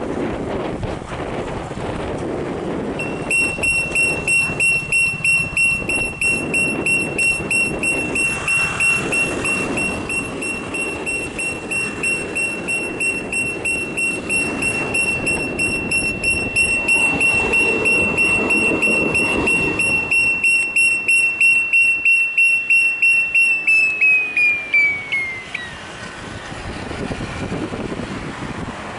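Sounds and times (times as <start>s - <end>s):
electronic alarm beeping: 3.0s - 25.8s.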